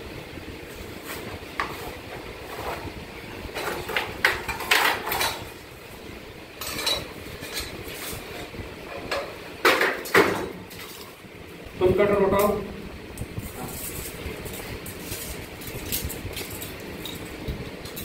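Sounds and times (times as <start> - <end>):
steady low background noise: 0.0 - 18.0
metal tools clinking and scraping: 6.6 - 9.3.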